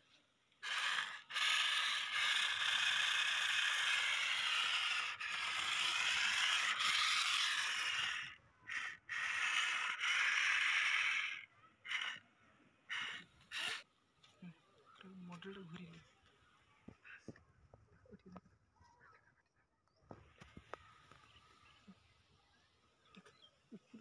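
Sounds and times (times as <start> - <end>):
toy electric motor whirring: 0.0 - 12.2, 12.9 - 13.8.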